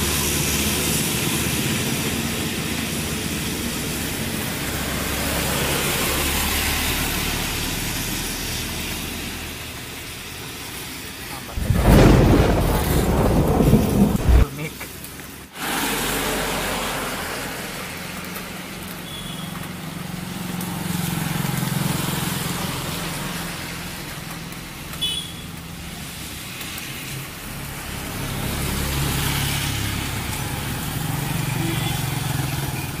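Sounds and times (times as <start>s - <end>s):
motorbikes and scooters passing: 0.0s - 14.5s, 26.1s - 33.0s
tyres hissing on wet road: 0.0s - 33.0s
loud low rumble: 11.5s - 14.5s.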